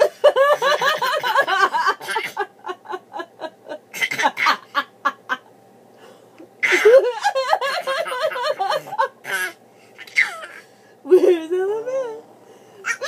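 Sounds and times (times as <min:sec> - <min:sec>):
woman laughing: 0:00.0 - 0:05.5, 0:06.7 - 0:09.2, 0:11.1 - 0:12.2
baby laughing: 0:06.6 - 0:10.6.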